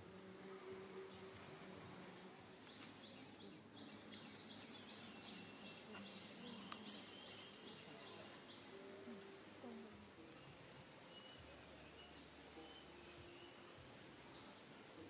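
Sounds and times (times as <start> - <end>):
bird chirping: 2.6 - 8.8, 10.4 - 14.6.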